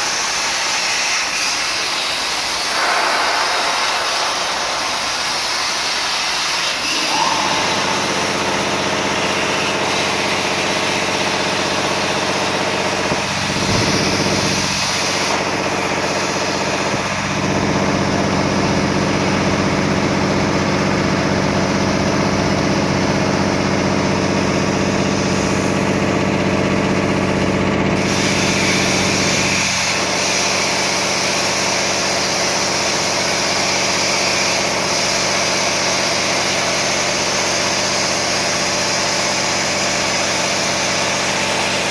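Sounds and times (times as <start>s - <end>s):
cutting machinery humming: 2.7s - 19.1s.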